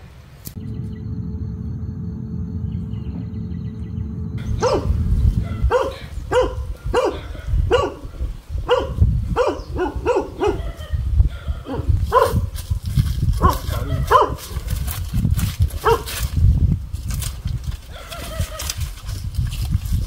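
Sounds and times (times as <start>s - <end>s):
steady low rumble: 0.1s - 8.6s
dog barking: 4.6s - 12.5s, 13.4s - 14.5s, 15.8s - 16.1s.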